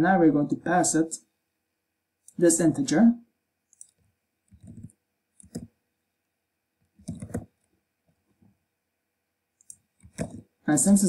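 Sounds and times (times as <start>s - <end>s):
keyboard keys clicking: 4.6s - 5.7s, 7.0s - 7.5s, 9.6s - 10.4s.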